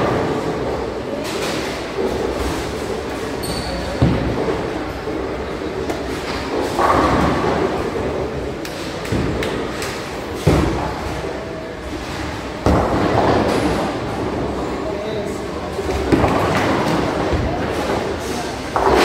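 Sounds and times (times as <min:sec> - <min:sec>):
bowling balls rolling: 0:00.0 - 0:14.8, 0:15.4 - 0:19.0
bowling balls thudding on lanes: 0:00.0 - 0:14.8, 0:15.4 - 0:19.0.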